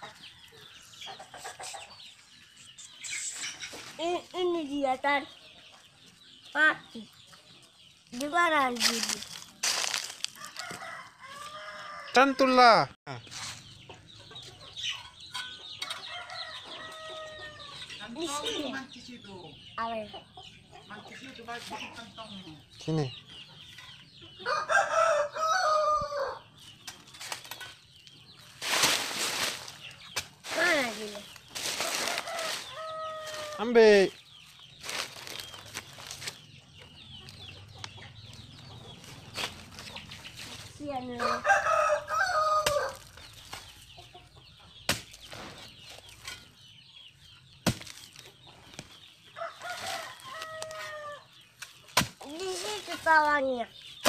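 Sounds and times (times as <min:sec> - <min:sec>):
rooster crowing: 0:10.4 - 0:12.6, 0:24.4 - 0:26.4, 0:31.9 - 0:33.6, 0:41.2 - 0:43.0, 0:49.4 - 0:51.3
chicken calling: 0:49.4 - 0:51.3.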